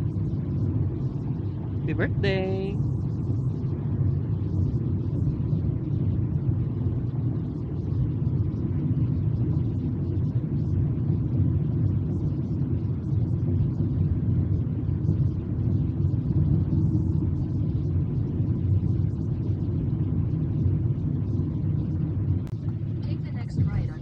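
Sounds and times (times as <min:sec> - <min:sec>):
car cabin road rumble: 0:21.4 - 0:24.0.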